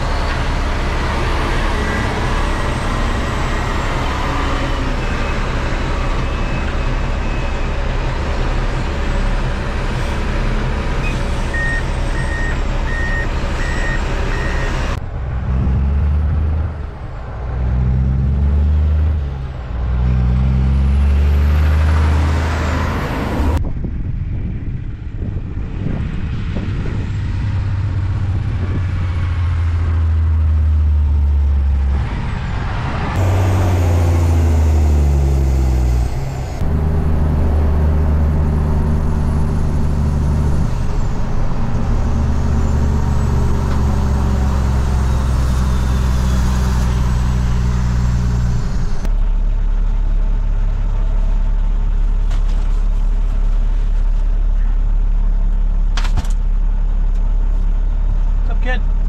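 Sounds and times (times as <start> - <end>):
truck diesel engine running: 0.0 - 23.6, 26.6 - 59.0
reversing beeper: 1.2 - 8.7, 11.0 - 15.0.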